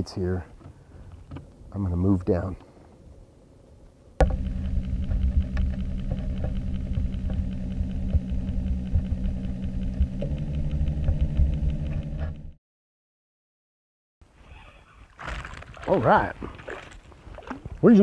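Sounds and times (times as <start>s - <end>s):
underwater motor whirring: 4.2s - 12.6s.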